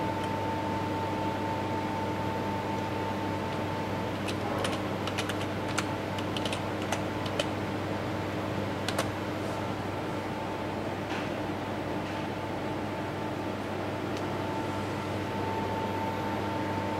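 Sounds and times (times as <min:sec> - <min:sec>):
keyboard typing: 0:03.5 - 0:07.5, 0:08.8 - 0:09.1.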